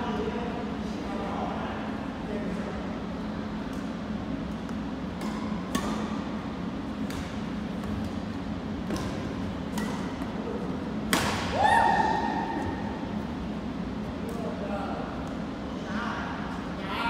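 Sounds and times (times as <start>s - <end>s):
steady low hum: 0.0s - 17.0s
rackets striking shuttlecock: 3.6s - 6.3s, 6.9s - 10.4s, 11.0s - 11.6s.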